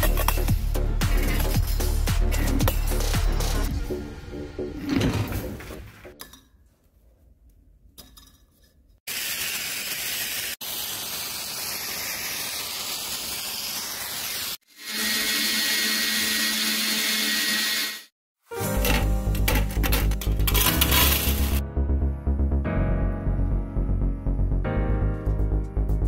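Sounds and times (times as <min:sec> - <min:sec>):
music: 0:00.0 - 0:06.2, 0:18.5 - 0:26.0
gas torch flame hissing: 0:09.1 - 0:14.6.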